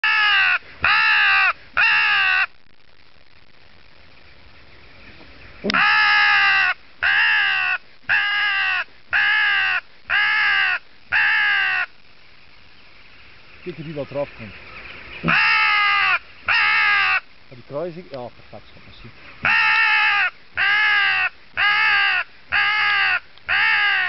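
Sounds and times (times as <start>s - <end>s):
crow call caws: 0.0s - 2.5s, 5.7s - 11.9s, 15.2s - 17.3s, 19.4s - 24.0s.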